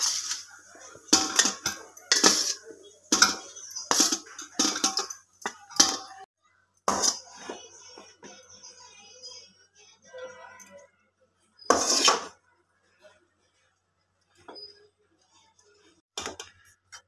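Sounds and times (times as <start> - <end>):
spoon clinking on metal pot: 0.0 - 6.3.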